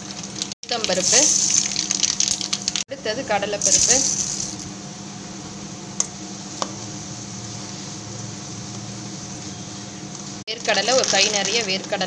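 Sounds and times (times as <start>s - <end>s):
seeds sizzling in hot oil: 0.0s - 2.8s, 6.2s - 12.0s.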